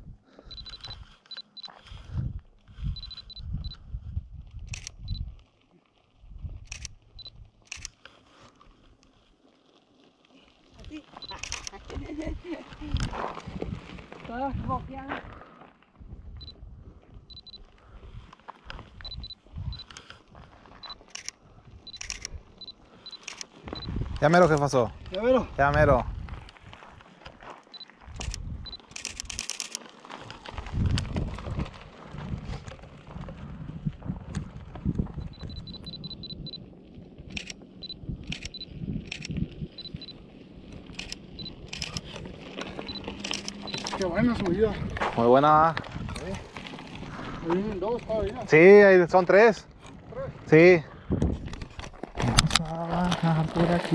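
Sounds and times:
camera autofocus beeps: 0.5 - 1.8, 3.0 - 3.8, 4.7 - 5.3, 6.7 - 8.0, 11.2 - 11.8, 17.3 - 17.6, 19.0 - 20.1, 20.8 - 23.9, 27.7 - 29.8, 35.2 - 36.6, 37.3 - 40.2, 40.9 - 42.2, 42.9 - 44.1
camera shutter clicks: 7.7 - 8.0, 11.2 - 11.8, 20.9 - 22.4, 23.1 - 23.5, 28.2 - 29.8, 40.8 - 42.2, 43.0 - 44.0.

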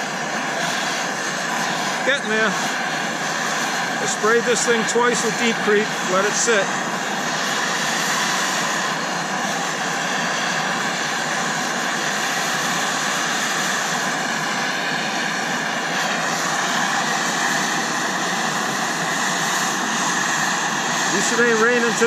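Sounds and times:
gas torches hissing: 0.0 - 22.0.

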